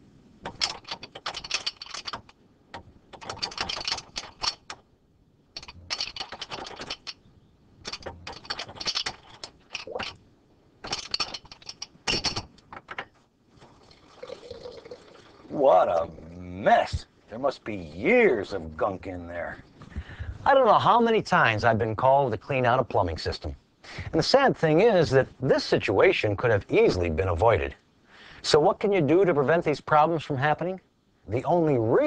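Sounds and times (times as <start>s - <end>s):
hand tool clicking and scraping: 0.4s - 4.8s, 5.6s - 7.2s, 7.8s - 10.2s, 10.8s - 12.8s.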